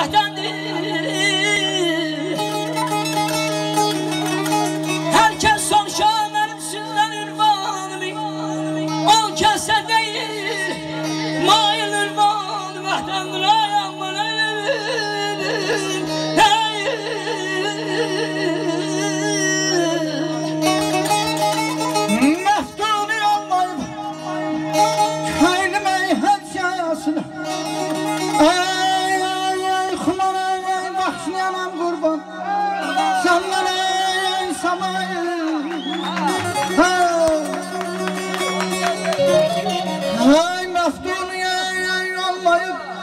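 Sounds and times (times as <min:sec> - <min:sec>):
man singing ornamented melody: 0:00.0 - 0:03.4, 0:05.0 - 0:27.2, 0:28.2 - 0:43.0
plucked lute: 0:00.0 - 0:30.3.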